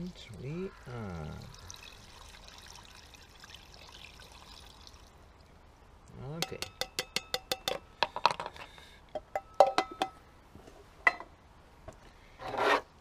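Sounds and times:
rustling scrape: 12.3s - 12.9s.

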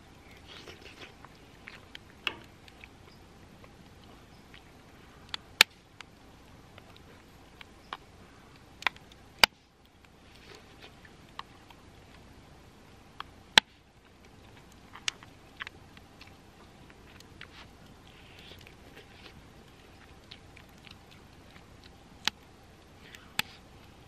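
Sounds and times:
campfire crackling and popping: 0.0s - 24.0s
chewing: 0.2s - 9.2s, 14.0s - 24.0s.

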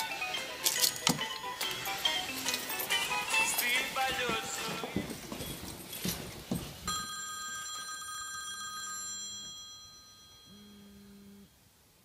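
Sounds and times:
telephone ringing: 6.9s - 10.8s.

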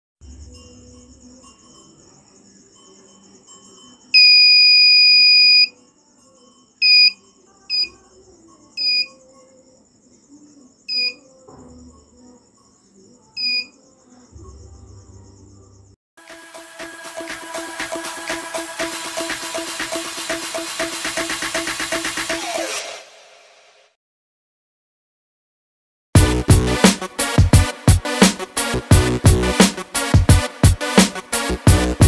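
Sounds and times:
buzz wire game beeping: 6.8s - 8.0s.

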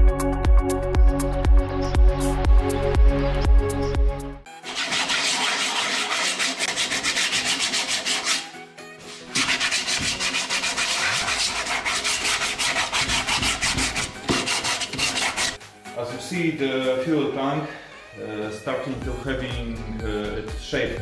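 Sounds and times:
sandpaper rubbing back and forth: 4.6s - 15.6s.

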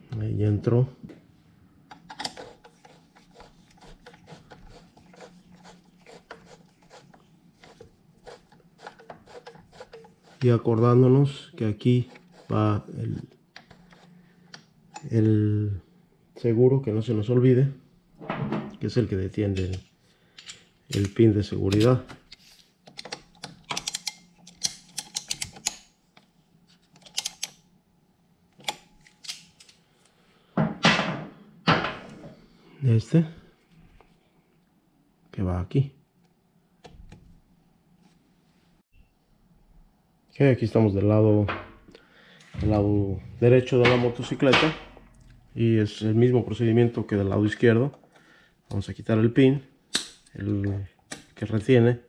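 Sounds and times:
metal tool clicking and scraping: 23.0s - 25.9s, 27.0s - 27.6s.

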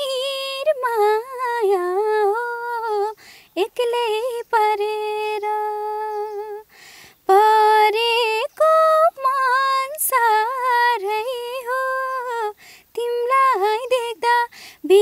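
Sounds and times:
woman singing unaccompanied: 0.0s - 15.0s
woman breathing in: 3.2s - 3.6s, 6.7s - 7.2s, 12.6s - 12.9s, 14.5s - 14.8s.

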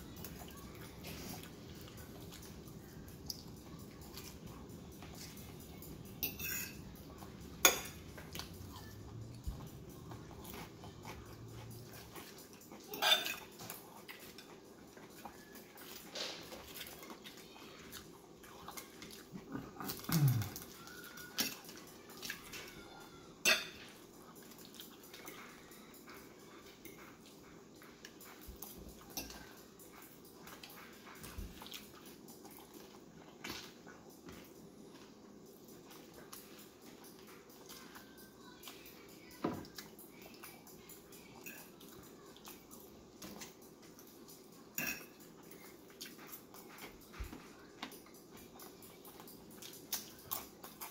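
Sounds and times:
fork scraping on a plate: 6.2s - 6.8s, 12.9s - 13.5s
chewing crunchy chips: 6.8s - 50.9s.

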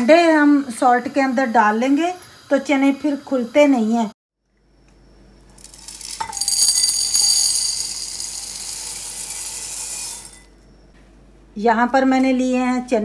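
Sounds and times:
chickpeas pouring into bowl: 5.6s - 10.4s.

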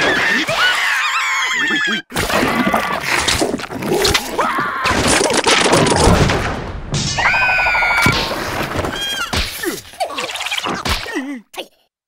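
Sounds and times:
cartoon crashes and clatters: 2.1s - 11.1s
high cartoon squeal: 7.1s - 8.3s.

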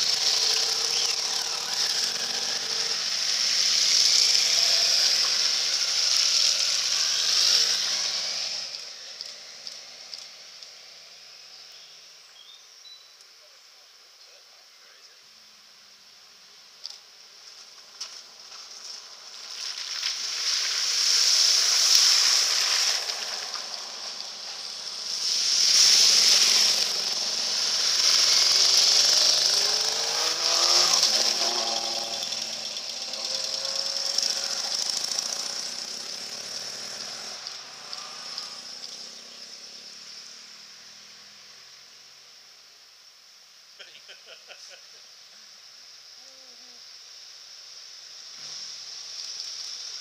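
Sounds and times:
vehicles splashing through water: 0.0s - 11.5s, 18.0s - 41.8s
motorcycle engine: 0.0s - 12.2s, 16.8s - 42.0s.

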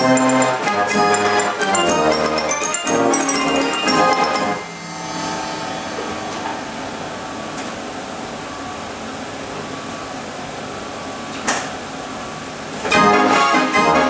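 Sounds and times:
organ notes: 0.0s - 8.1s.

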